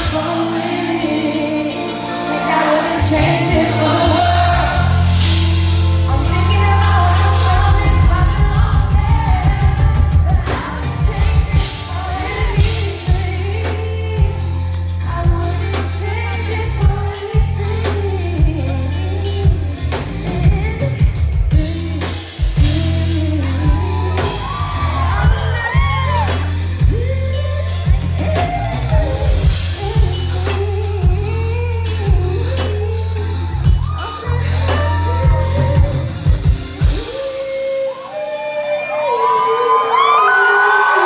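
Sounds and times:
woman singing into a microphone: 0:00.0 - 0:05.0, 0:06.1 - 0:41.0
live band with heavy bass: 0:00.0 - 0:41.0.

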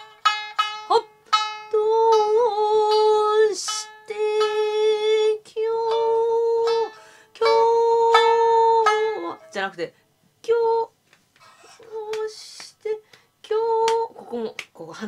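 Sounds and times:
plucked shamisen notes: 0:00.0 - 0:09.9
woman singing held notes: 0:11.7 - 0:15.0.

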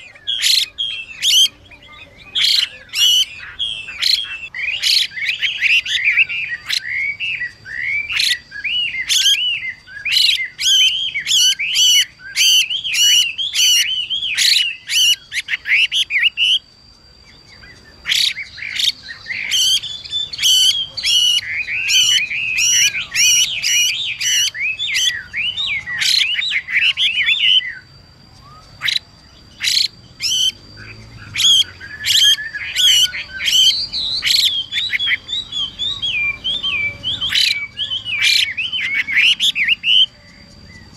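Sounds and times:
bird calling harsh notes and whistles: 0:00.0 - 0:40.9.

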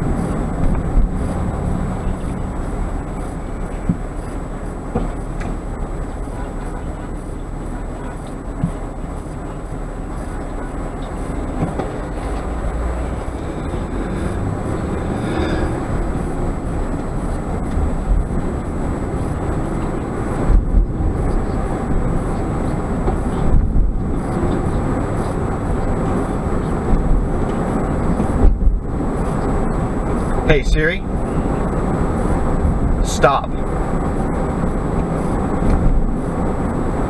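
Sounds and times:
car road and engine noise: 0:00.0 - 0:37.0
low thumps: 0:11.2 - 0:26.2.

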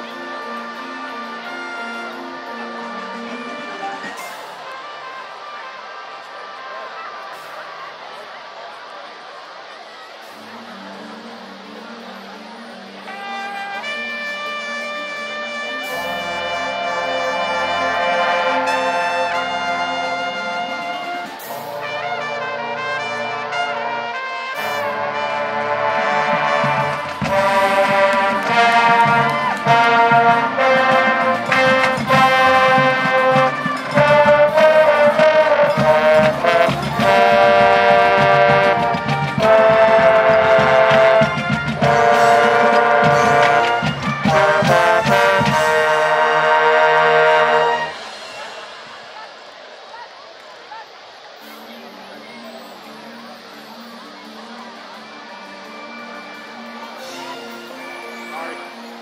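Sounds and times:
brass sustained chords: 0:00.0 - 0:06.5, 0:10.3 - 0:49.2
drumline hitting hard: 0:24.6 - 0:49.4.

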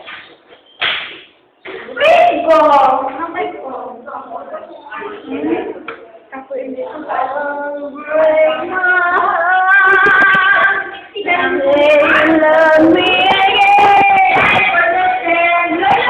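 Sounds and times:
woman singing long notes: 0:07.2 - 0:16.0.

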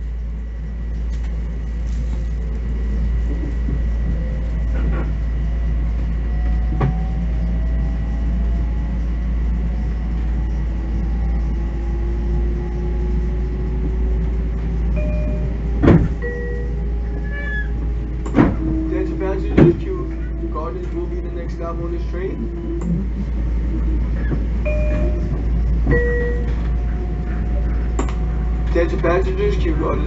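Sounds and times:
train running rumble: 0:00.0 - 0:30.0.

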